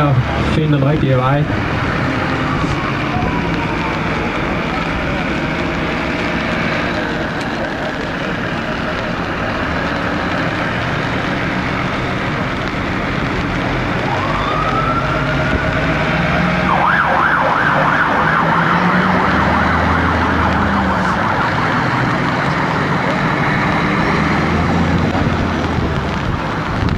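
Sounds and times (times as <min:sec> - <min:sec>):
diesel truck engines rumbling: 0:00.0 - 0:26.9
emergency siren wailing and yelping: 0:01.6 - 0:06.2, 0:13.9 - 0:24.8.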